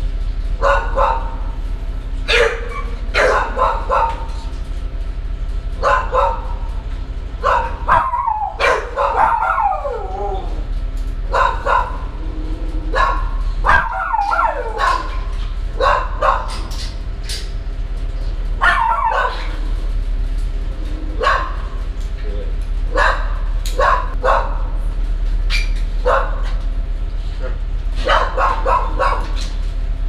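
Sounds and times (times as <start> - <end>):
steady low hum: 0.0 - 30.0
dog barking: 0.6 - 1.6, 2.2 - 4.4, 5.8 - 6.7, 7.4 - 10.5, 11.3 - 12.2, 12.9 - 16.8, 18.6 - 19.6, 21.2 - 21.8, 22.9 - 24.7, 25.5 - 26.6, 28.0 - 29.5
dog yelping: 0.6 - 1.6, 2.2 - 4.5, 5.8 - 6.7, 7.4 - 17.5, 18.6 - 19.8, 20.7 - 21.9, 22.9 - 24.7, 25.5 - 26.6, 28.0 - 29.6.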